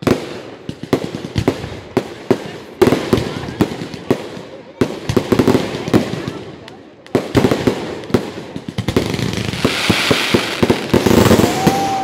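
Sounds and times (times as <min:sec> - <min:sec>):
fireworks bangs and crackling: 0:00.0 - 0:12.0
firework hiss: 0:09.0 - 0:12.0.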